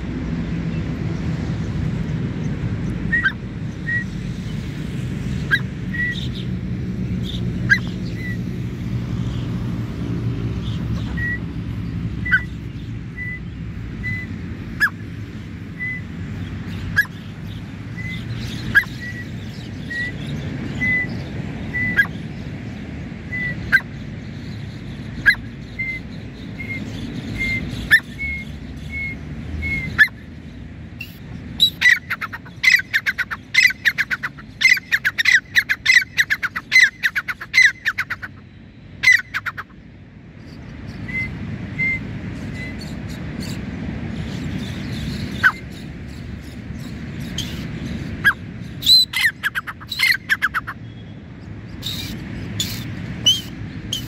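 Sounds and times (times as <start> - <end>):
bird chirping: 10.5 - 39.7, 40.4 - 54.0.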